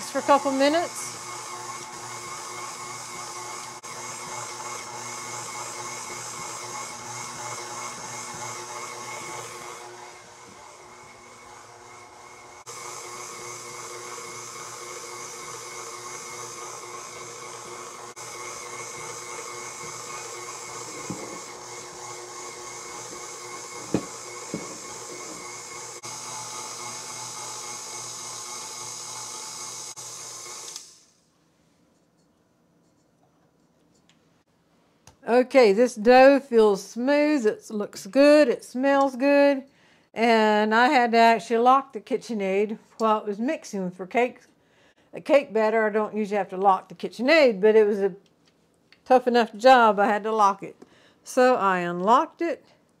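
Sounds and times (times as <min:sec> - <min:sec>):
stand mixer motor whining: 0:00.0 - 0:31.2.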